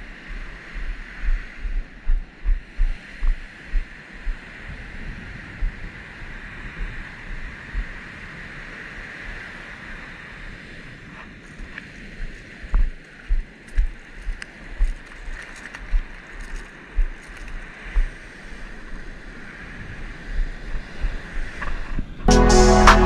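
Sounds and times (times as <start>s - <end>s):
wind on microphone: 0.0s - 22.3s
low thumps: 0.8s - 4.4s.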